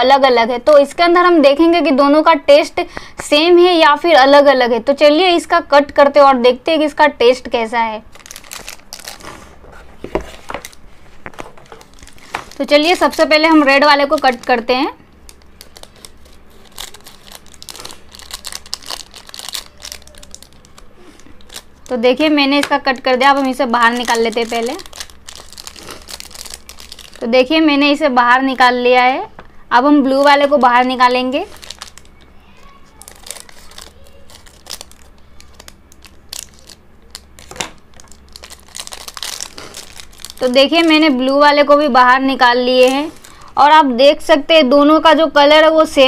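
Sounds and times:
plastic wrapper crinkling: 0:08.0 - 0:27.6, 0:30.0 - 0:43.5.

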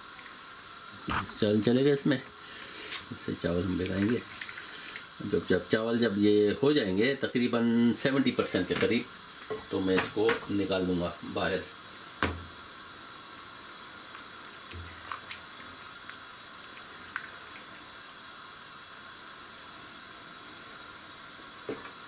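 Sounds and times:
rice boiling in a pot: 0:00.0 - 0:22.0.

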